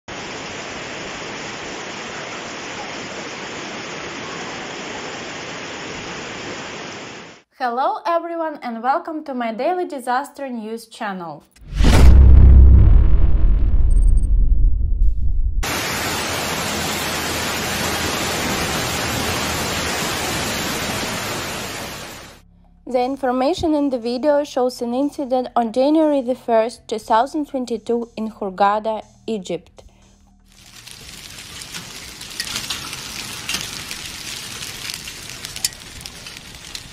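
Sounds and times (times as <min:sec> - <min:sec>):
heavy rain hissing on street: 0:00.1 - 0:07.4, 0:15.6 - 0:22.4, 0:30.5 - 0:36.9
hailstones striking the ground: 0:30.5 - 0:36.9.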